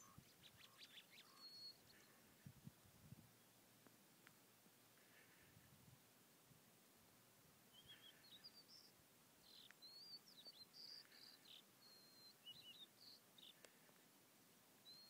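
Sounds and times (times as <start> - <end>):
small bird singing: 0.0 - 2.3, 7.7 - 13.8.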